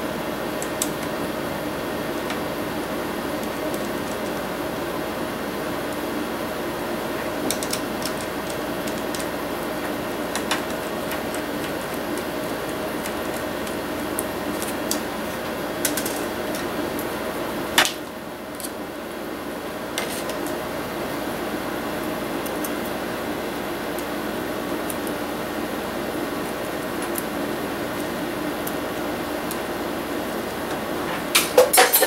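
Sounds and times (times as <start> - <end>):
steady background hum: 0.0 - 32.0.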